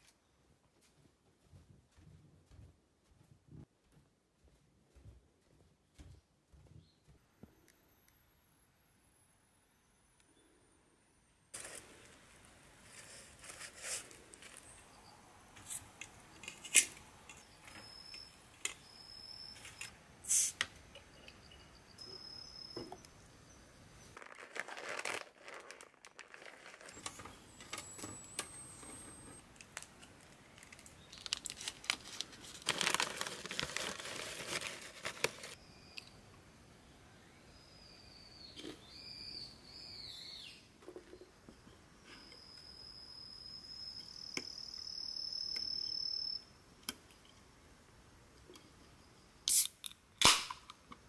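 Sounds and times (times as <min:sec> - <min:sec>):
plastic snack bag crinkling: 0:24.2 - 0:28.0, 0:29.6 - 0:35.6.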